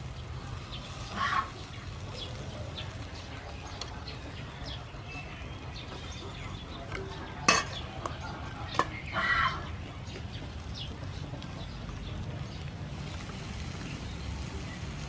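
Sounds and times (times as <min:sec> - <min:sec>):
low outdoor rumble: 0:00.0 - 0:15.0
utensil clinking on grill rack: 0:05.9 - 0:09.4.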